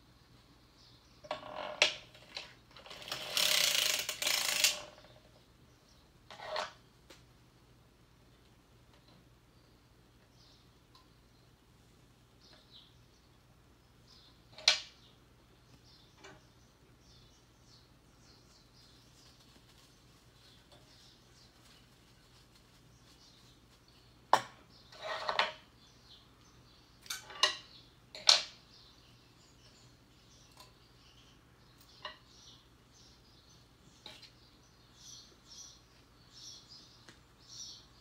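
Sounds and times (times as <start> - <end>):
metallic clicks of steel needles: 2.3 - 4.9.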